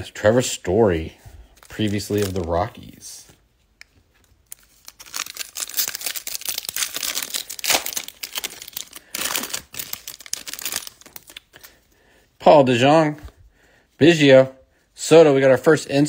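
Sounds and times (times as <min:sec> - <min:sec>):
foil wrapper crinkling: 0:01.6 - 0:03.0, 0:04.2 - 0:11.8.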